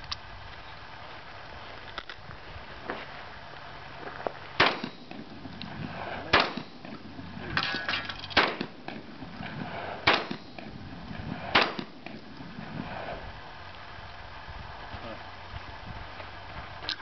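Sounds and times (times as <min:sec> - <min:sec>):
shotgun shots with echo: 0:04.6 - 0:05.3, 0:05.9 - 0:12.2.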